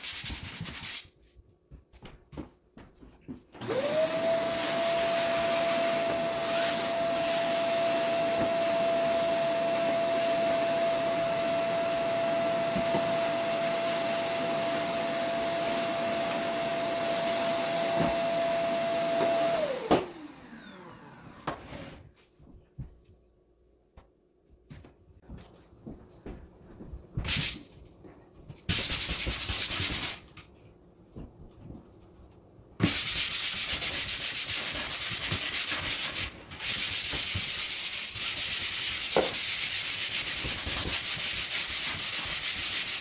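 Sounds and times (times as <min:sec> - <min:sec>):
vacuum cleaner motor whine: 0:03.6 - 0:22.0.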